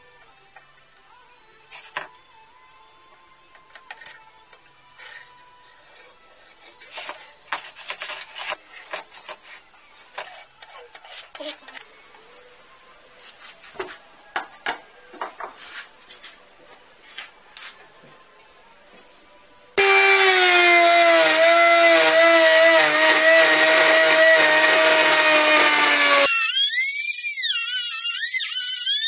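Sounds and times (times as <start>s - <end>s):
wooden parts clicking and scraping: 3.5s - 5.3s, 6.8s - 11.8s.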